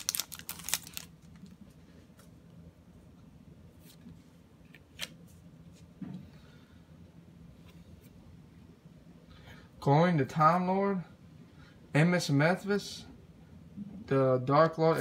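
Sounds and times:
foil wrapper crinkling: 0.0s - 1.6s
trading cards rustling and clicking: 0.0s - 1.6s.

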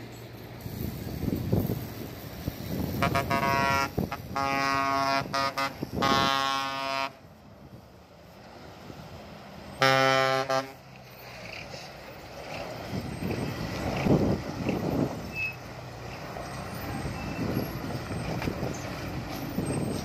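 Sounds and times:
engine and road noise: 0.0s - 20.0s
bus horn tooting: 3.0s - 7.3s, 9.8s - 10.8s.

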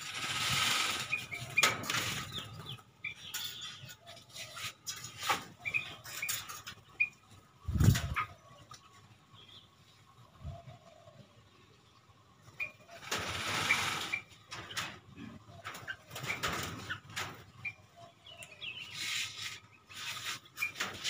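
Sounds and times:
wings flapping: 0.0s - 2.7s
small birds chirping: 0.0s - 21.0s.

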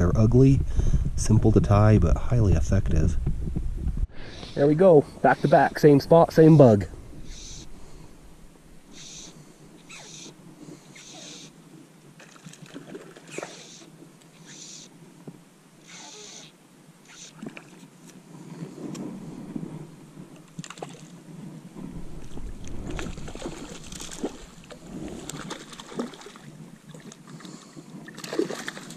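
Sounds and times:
low rush: 0.1s - 9.6s
fly line hissing through guides: 7.2s - 7.7s, 8.9s - 11.5s, 13.3s - 14.9s, 15.8s - 17.5s.

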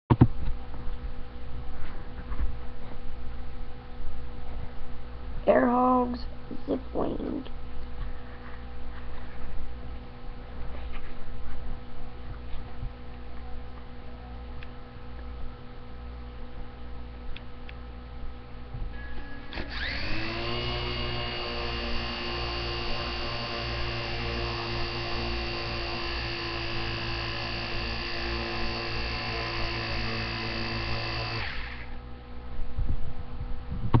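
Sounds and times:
toy plane motor whine: 19.0s - 32.0s.

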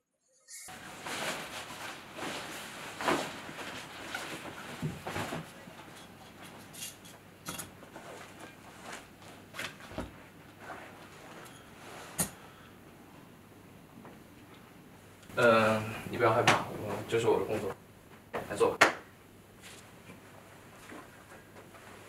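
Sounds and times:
nylon jacket rustling: 0.7s - 5.6s.

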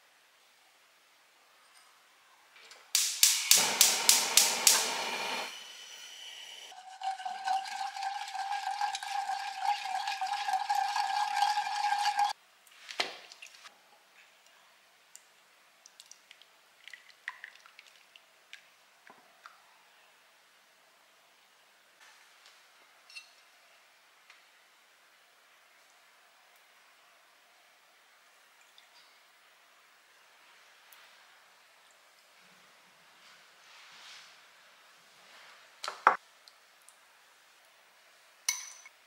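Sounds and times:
liquid pouring: 6.7s - 12.4s.

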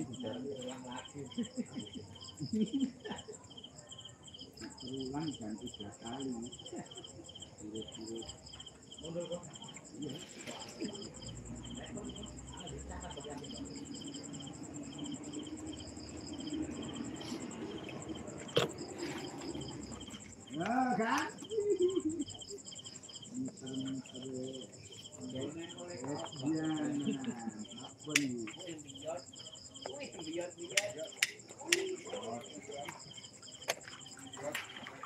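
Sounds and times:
crickets chirping: 0.0s - 35.0s
faint talking: 18.6s - 33.3s.

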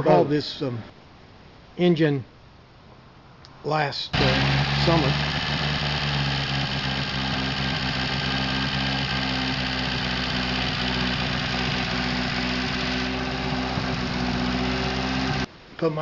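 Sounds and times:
inboard boat engine idling: 4.2s - 15.5s.

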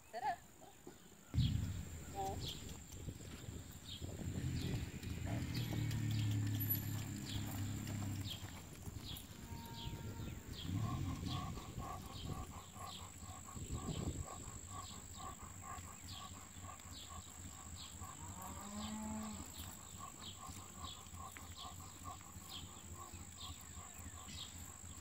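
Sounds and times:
horse loping on dirt: 1.0s - 25.0s
cattle mooing: 9.3s - 12.3s.

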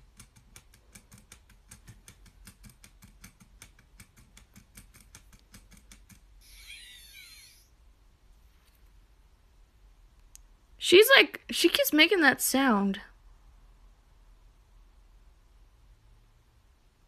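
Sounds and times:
keyboard typing clicks: 0.0s - 6.3s
robot toy electronic warble: 6.4s - 7.7s.

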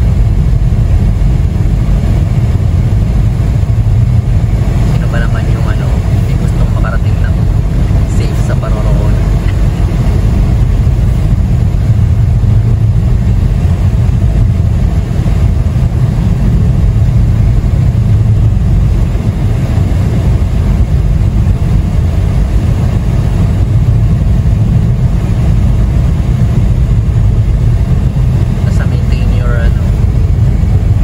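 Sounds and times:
car engine and tyre rumble: 0.0s - 31.0s.

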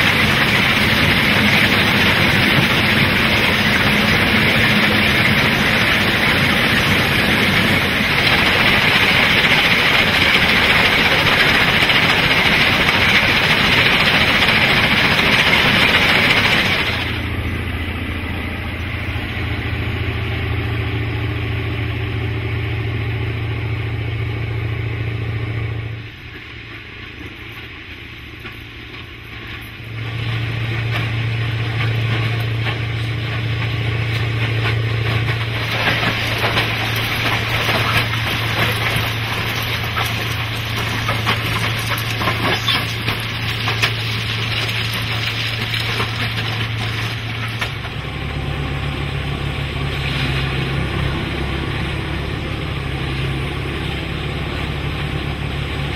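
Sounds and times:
diesel engine humming: 0.0s - 55.9s
ballast stones crunching: 35.1s - 47.9s.

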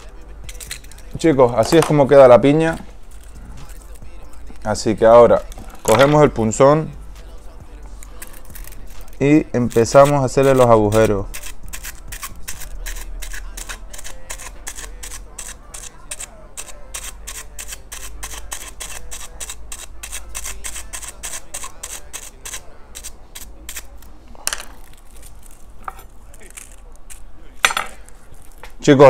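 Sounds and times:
foil being pierced clicks: 8.0s - 24.1s, 24.7s - 27.3s.

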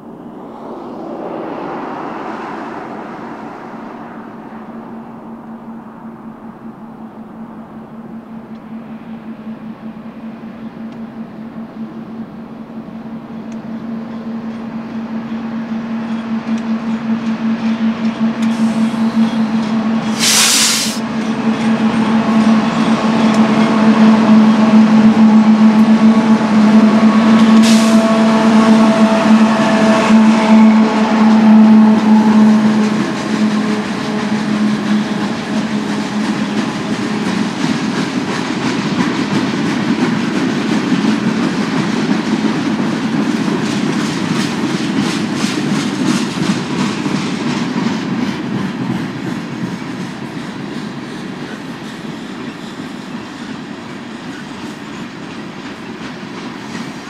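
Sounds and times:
diesel locomotive engine drone: 0.0s - 57.0s
train wheels on rails: 0.0s - 57.0s
brief hiss: 20.1s - 21.0s.

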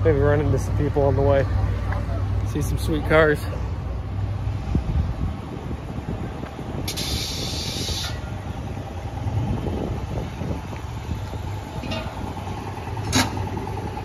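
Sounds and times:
engines idling: 0.0s - 14.0s
air hiss: 6.9s - 8.2s.

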